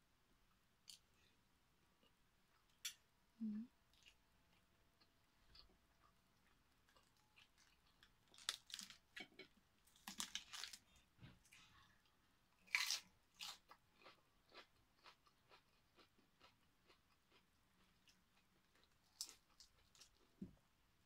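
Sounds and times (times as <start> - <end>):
crunching lettuce: 6.9 - 9.0, 9.9 - 11.0, 12.6 - 17.4.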